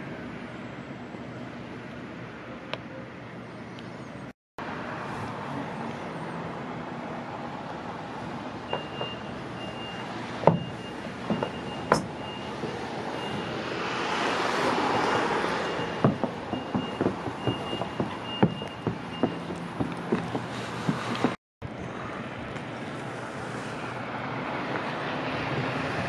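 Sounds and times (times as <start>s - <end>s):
reversing alarm beeping: 8.7s - 13.6s, 15.6s - 19.7s
sharp knocks: 10.4s - 12.2s, 15.9s - 21.4s.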